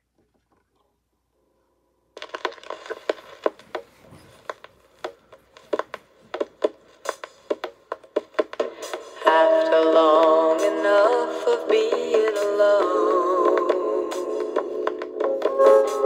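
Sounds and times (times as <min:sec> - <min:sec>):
vinyl surface noise hiss: 0:00.0 - 0:16.0
vinyl clicks and pops: 0:02.2 - 0:09.0.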